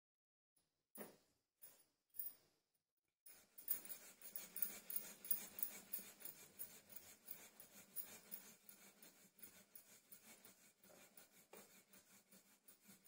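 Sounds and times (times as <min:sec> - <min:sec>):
rolling pin rolling dough: 0:03.3 - 0:13.0.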